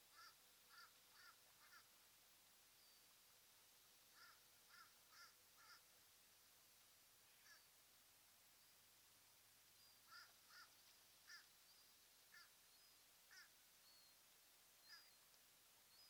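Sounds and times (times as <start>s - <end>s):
faint short bird calls: 0.0s - 1.9s, 4.1s - 5.9s, 7.2s - 7.8s, 9.8s - 14.2s, 14.8s - 16.0s.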